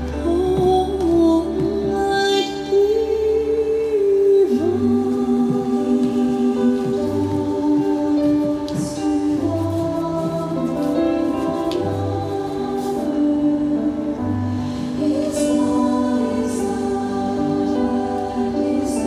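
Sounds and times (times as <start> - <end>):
soft bass: 0.0 - 19.0
choir singing held notes: 11.3 - 19.0.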